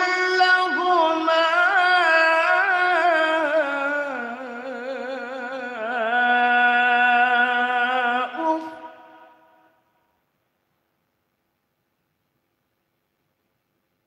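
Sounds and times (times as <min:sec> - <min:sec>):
man reciting melodically: 0:00.0 - 0:09.7.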